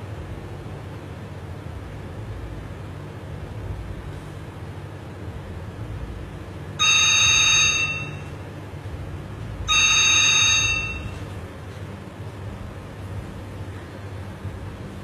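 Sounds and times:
steady low hum: 0.0 - 15.0
telephone ringing: 6.8 - 8.4, 9.7 - 11.4.

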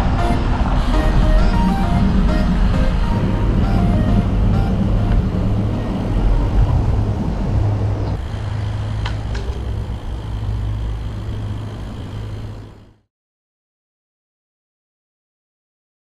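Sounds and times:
wind and road noise: 0.0 - 13.0.

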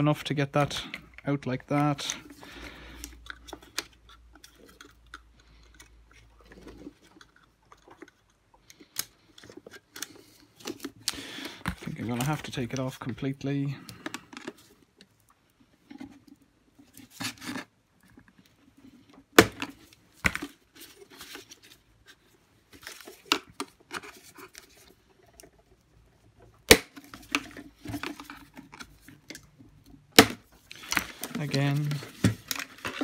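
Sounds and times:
plastic parts clicking and rattling: 0.0 - 33.0
sharp plastic knocks: 19.4 - 20.4, 30.1 - 31.0.

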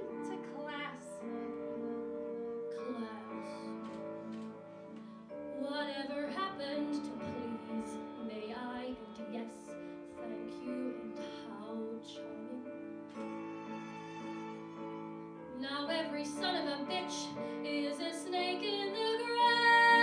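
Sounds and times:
woman singing: 0.0 - 4.4, 5.4 - 13.0, 15.5 - 20.0.

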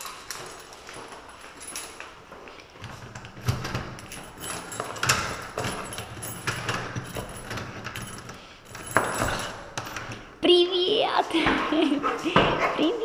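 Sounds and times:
bunch of keys rattling: 0.0 - 10.4.

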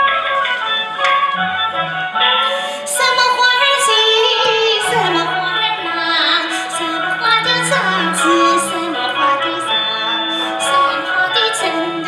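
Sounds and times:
instrumental accompaniment: 0.0 - 12.0
woman singing opera: 2.4 - 12.0.

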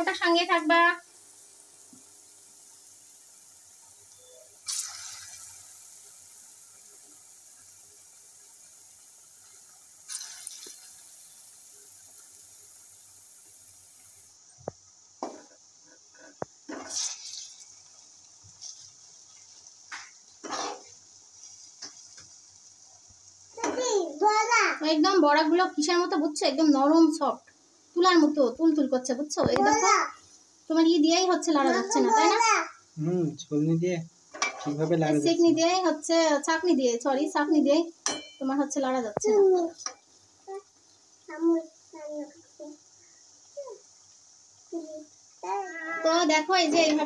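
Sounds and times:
oil sizzling hiss: 0.0 - 47.0
metal spoon knocking on wok: 38.0 - 38.4.

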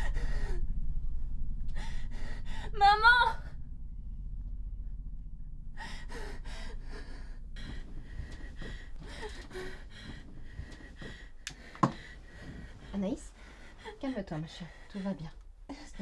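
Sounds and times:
woman gasping and breathing fast: 5.8 - 16.0.

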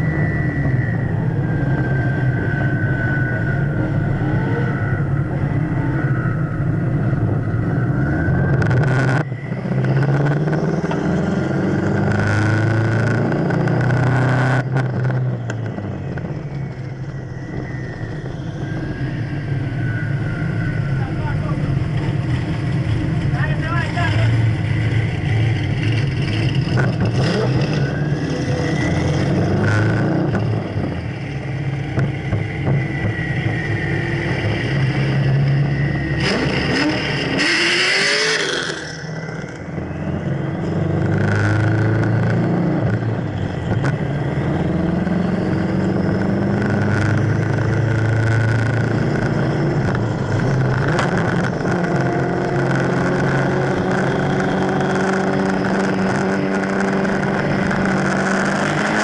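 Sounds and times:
engine note rising in pitch: 0.0 - 43.6
car engines running: 0.0 - 59.0
wind and road noise: 0.0 - 59.0.

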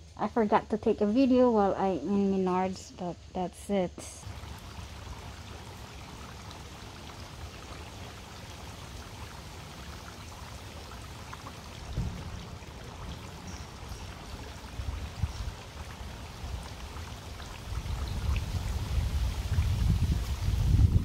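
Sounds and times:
fountain water splashing: 4.2 - 21.0
low thump: 11.8 - 12.6.

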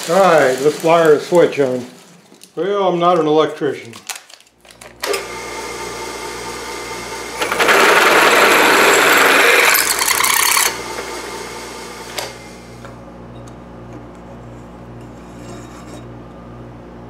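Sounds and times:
drill press motor running: 4.7 - 13.4
drill boring into metal: 5.0 - 12.4.

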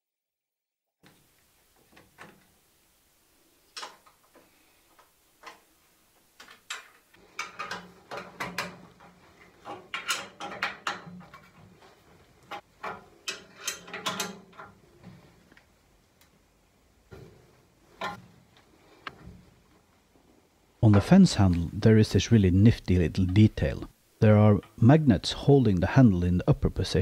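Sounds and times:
metal clicks and clanks of tools: 6.4 - 11.7, 12.4 - 14.8.

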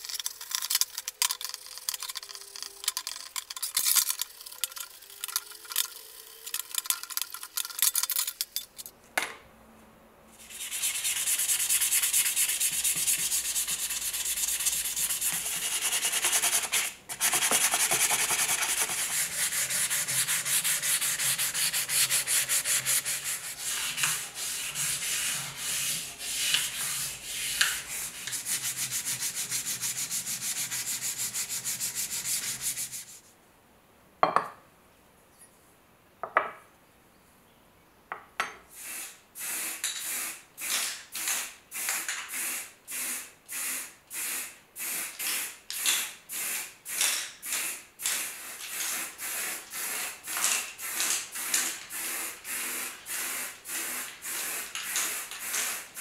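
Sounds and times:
hand sanding metal: 10.4 - 33.2
spray paint can bursts: 38.8 - 56.0.

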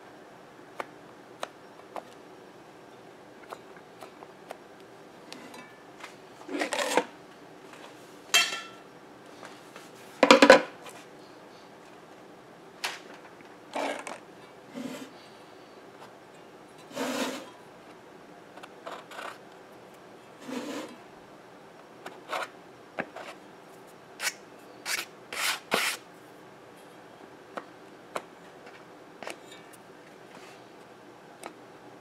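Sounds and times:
scraping on a hard surface: 6.5 - 7.1, 13.8 - 15.2, 16.8 - 17.6, 20.4 - 21.0.

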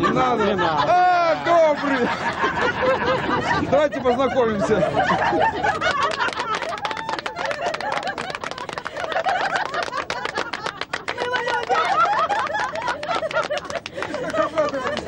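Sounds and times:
laughter: 0.0 - 15.0
women clapping hands: 5.8 - 15.0
voices: 10.7 - 15.0.

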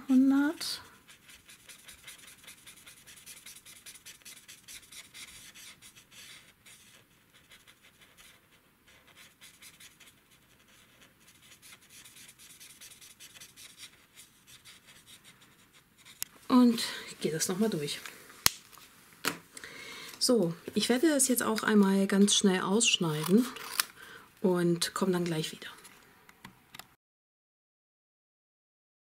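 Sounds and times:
marker scratching on card: 1.0 - 16.3.

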